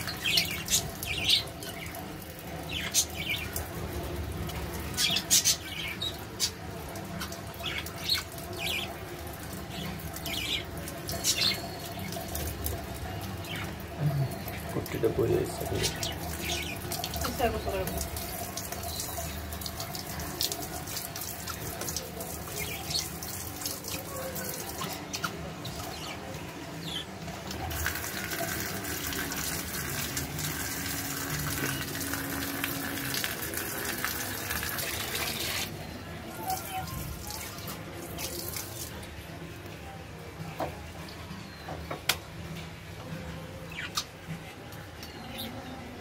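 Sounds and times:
water spraying and splashing: 0.0 - 25.2, 27.5 - 35.8, 36.4 - 39.0.

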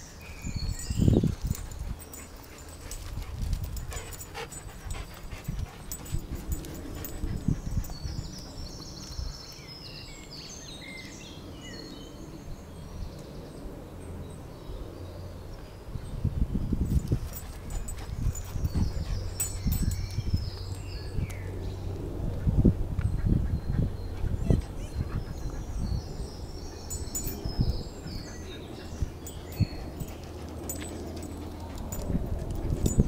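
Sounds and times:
wind rumbling on microphone: 0.0 - 33.0
dog panting: 1.5 - 8.7, 17.1 - 20.0, 23.0 - 33.0.

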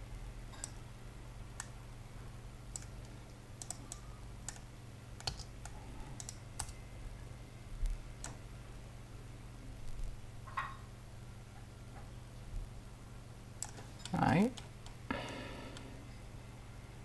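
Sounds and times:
low electrical hum: 0.0 - 17.0
mouse and keyboard clicking: 2.7 - 6.8, 13.6 - 15.0.

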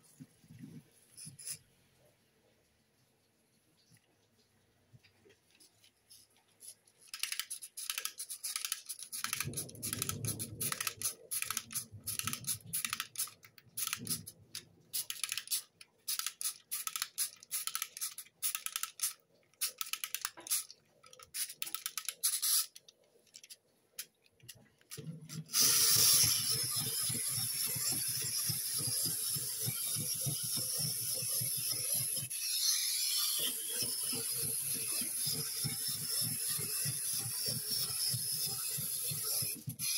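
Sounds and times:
toy motor and gearbox clattering: 1.2 - 1.6, 6.1 - 39.9
plastic clicking: 7.0 - 25.1.

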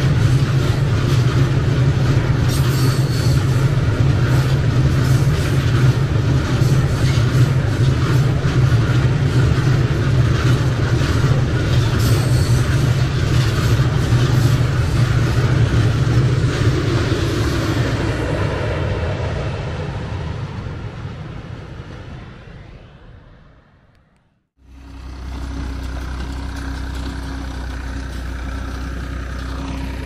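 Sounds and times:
wheels clacking over rails: 0.0 - 18.5, 24.7 - 30.0
freight train rumbling: 0.0 - 30.0.

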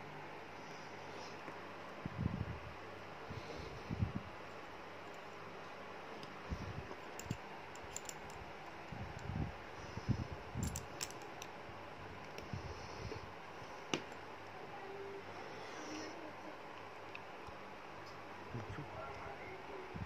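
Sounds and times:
glass and metal parts clicking: 7.0 - 8.4, 10.6 - 11.5.

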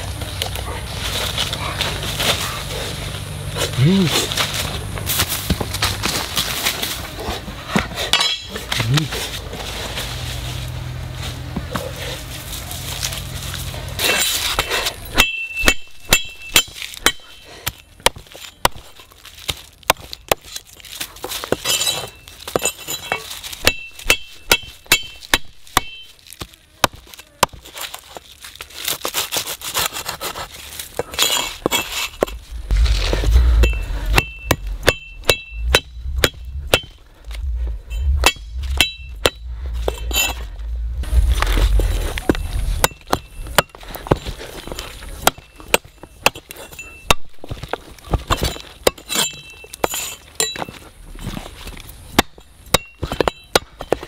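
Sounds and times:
blade chopping stalks on wood: 11.3 - 40.5, 41.3 - 54.0.

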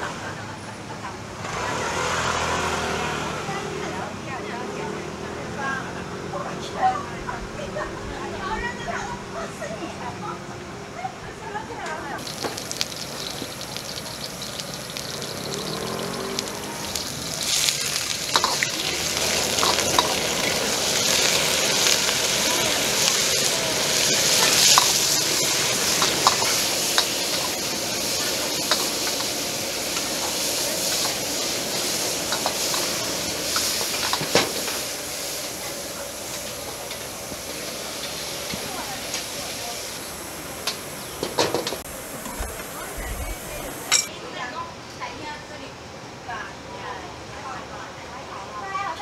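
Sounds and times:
meat sizzling in hot oil: 12.2 - 44.1
metal ladle scraping a wok: 12.7 - 22.0.

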